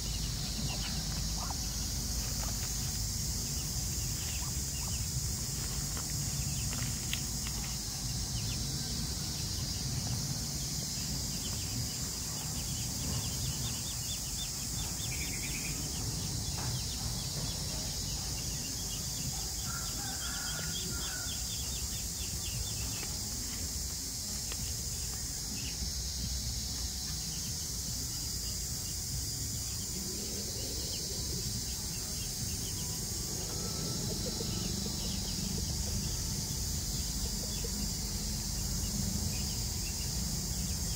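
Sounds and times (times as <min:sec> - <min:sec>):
steady high hiss: 0:00.0 - 0:40.9
bird chirps: 0:11.3 - 0:23.0.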